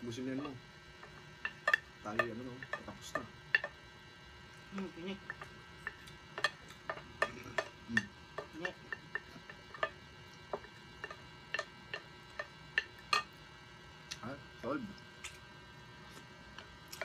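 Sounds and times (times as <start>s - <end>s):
wooden spoons clicking on plate: 0.4s - 3.8s, 5.2s - 13.3s.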